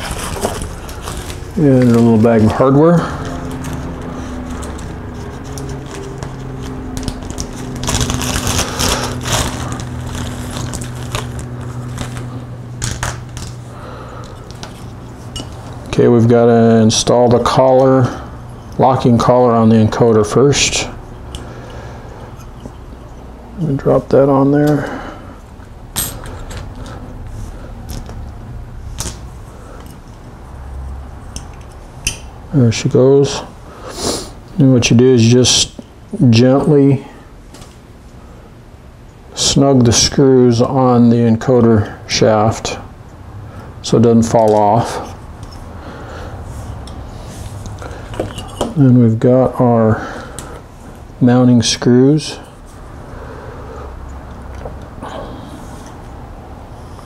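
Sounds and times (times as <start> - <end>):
plastic bag crinkling: 0.0 - 2.2, 5.6 - 13.6
steady low hum: 0.0 - 57.0.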